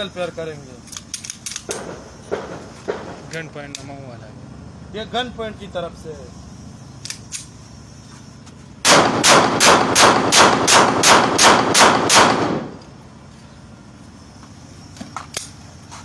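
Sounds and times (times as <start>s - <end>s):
pistol shots: 1.6s - 3.3s, 8.8s - 12.8s.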